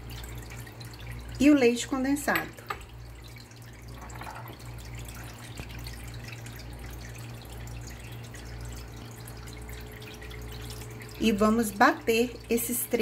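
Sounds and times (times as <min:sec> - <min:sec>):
liquid dripping: 0:00.0 - 0:13.0
low steady hum: 0:00.0 - 0:13.0
thick liquid pouring: 0:02.8 - 0:11.2.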